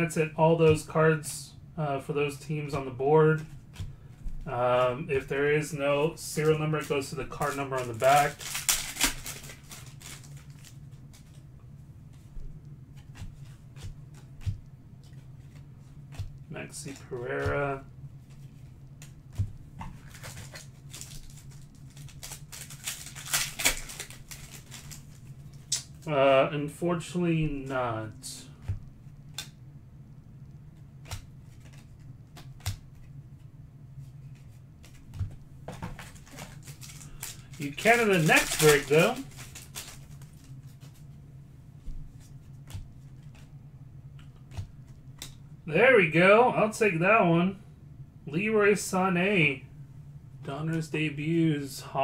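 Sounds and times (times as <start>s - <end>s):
low steady hum: 0.0s - 52.0s
trading cards flipped by hand: 12.1s - 26.0s, 31.0s - 33.2s, 34.0s - 41.2s, 41.8s - 43.6s.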